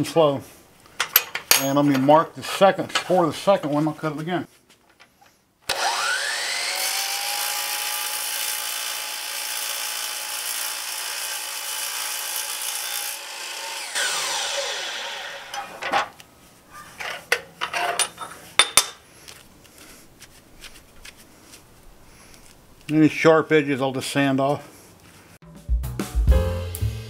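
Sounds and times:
clicks and knocks of metal: 0.9s - 2.1s, 17.0s - 19.0s
saw blade winding down: 5.7s - 15.9s
miter saw cutting aluminum: 5.7s - 16.2s.

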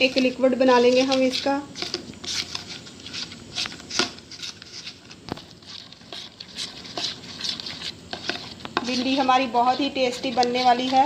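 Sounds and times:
spoon scraping bowl: 0.0s - 11.0s
wet batter squishing: 0.0s - 11.0s.

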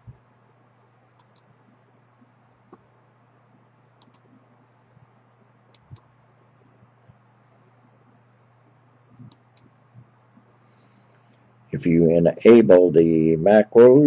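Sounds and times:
faint low hum: 0.0s - 14.0s
computer mouse clicks: 1.2s - 1.5s, 4.0s - 4.4s, 5.7s - 6.1s, 9.2s - 9.8s.

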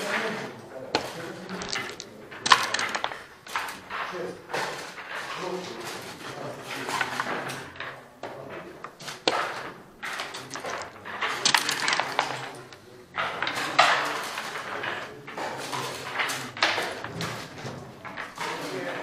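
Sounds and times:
game pieces clacking: 0.0s - 19.0s
dice rattling on wooden board: 0.9s - 19.0s.

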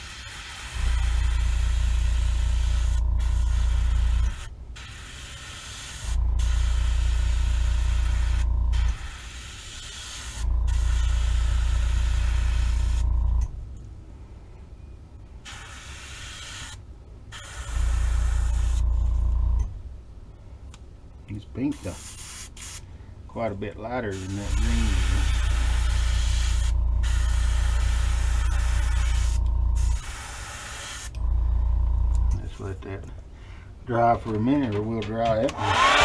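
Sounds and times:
airbrush air hissing: 0.0s - 13.1s, 15.4s - 19.0s, 21.7s - 22.9s, 24.1s - 31.2s.

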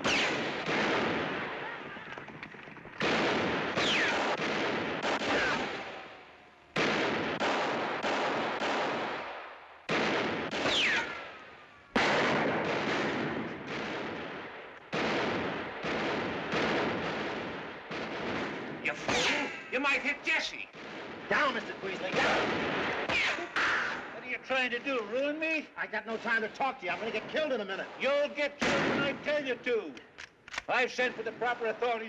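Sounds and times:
revolver shots echoing: 3.0s - 11.4s
ricochet whine: 3.7s - 4.4s.

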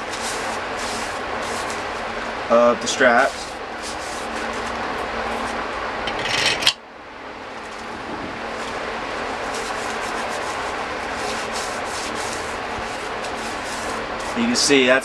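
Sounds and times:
gloved hands rubbing steel parts: 0.0s - 2.3s, 2.9s - 5.6s, 8.5s - 14.7s
loud scraping rush: 7.8s - 14.7s.

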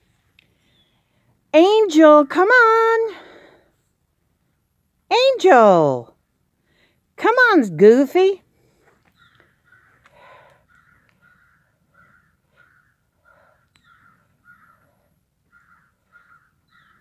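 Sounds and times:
faint harsh bird calls: 9.1s - 17.0s.

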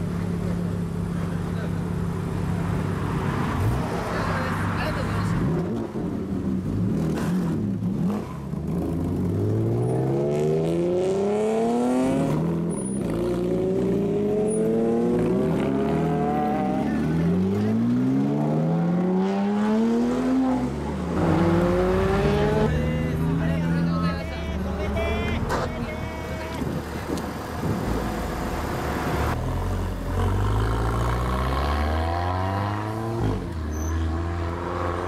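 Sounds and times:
sports car engines revving away: 6.6s - 23.0s, 27.6s - 35.0s.

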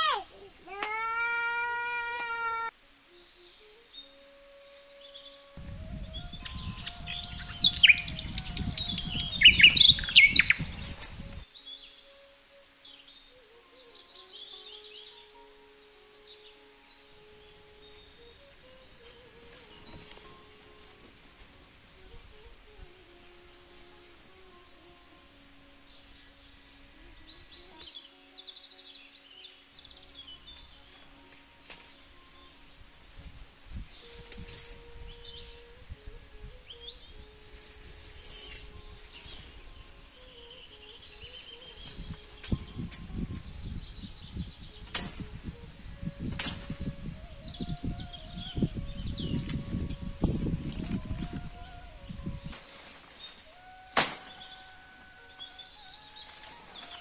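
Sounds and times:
birds chirping: 0.0s - 57.0s
leaves and stems rustling: 0.0s - 57.0s
high-pitched insect drone: 16.9s - 28.8s.

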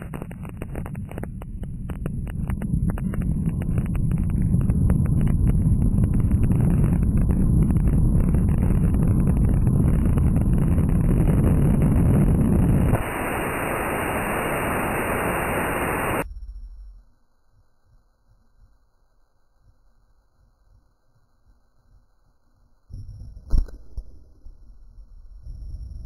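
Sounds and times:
crackling clicks: 0.0s - 16.2s, 22.9s - 24.5s
radio static hiss: 0.0s - 16.3s
wind buffeting microphone: 2.0s - 13.1s.

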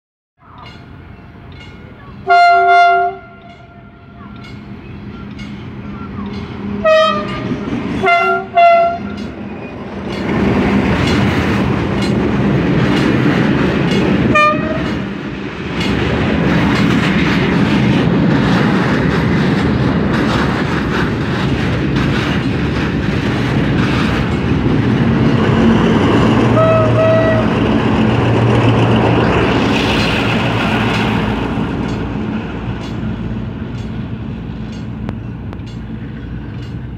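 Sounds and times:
freight train rumbling past: 0.4s - 36.9s
locomotive horn blasts: 2.2s - 4.4s, 6.6s - 9.2s, 14.3s - 15.1s, 26.5s - 27.6s
wheel clatter over rail joints: 3.4s - 36.9s.

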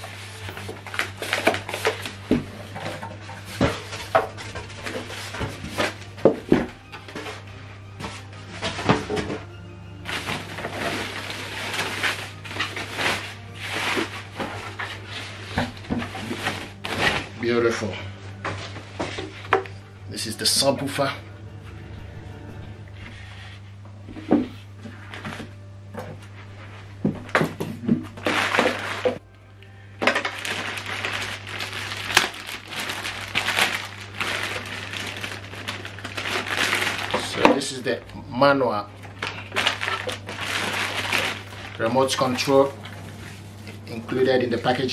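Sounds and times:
plastic wrap crinkling: 0.0s - 7.5s, 10.0s - 19.6s, 28.1s - 29.2s, 30.0s - 38.0s, 39.0s - 44.8s
steady low hum: 0.0s - 37.2s.

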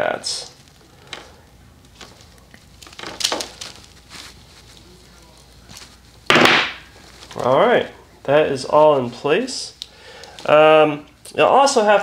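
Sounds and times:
soft rustles: 0.5s - 9.3s.

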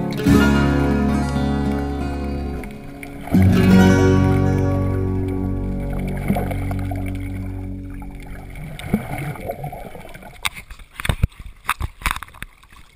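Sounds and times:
guitar chord ringing: 0.0s - 9.0s.

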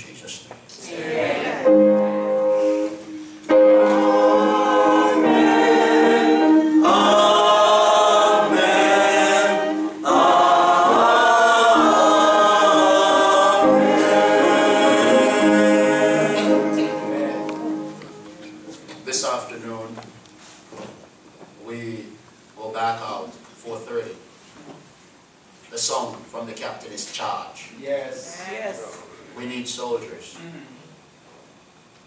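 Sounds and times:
church singing: 1.0s - 19.7s.

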